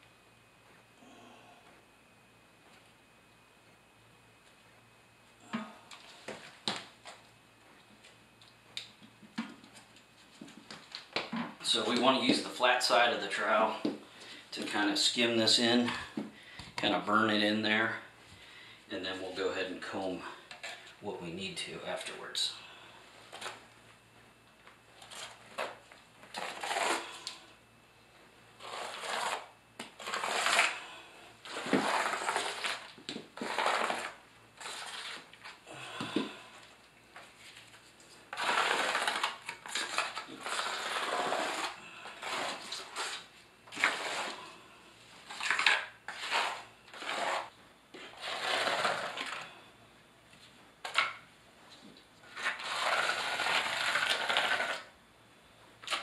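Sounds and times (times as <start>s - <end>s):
trowel scraping mortar: 25.0s - 27.4s, 28.6s - 30.8s, 31.4s - 35.5s, 38.3s - 44.6s, 45.3s - 49.5s, 52.3s - 54.9s.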